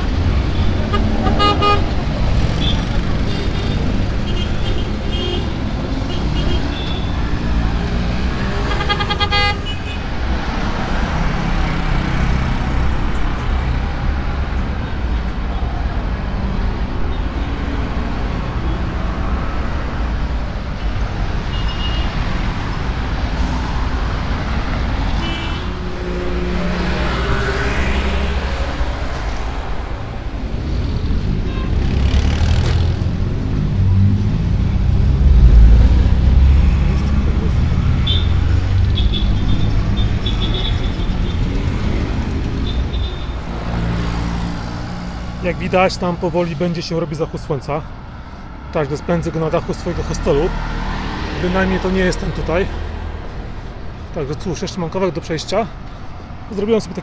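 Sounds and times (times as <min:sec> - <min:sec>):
traffic engine rumble: 0:00.0 - 0:57.0
horns honking: 0:00.4 - 0:07.3, 0:08.2 - 0:10.1, 0:21.5 - 0:22.2, 0:25.2 - 0:29.0, 0:31.3 - 0:32.2, 0:36.4 - 0:41.6, 0:42.5 - 0:45.9.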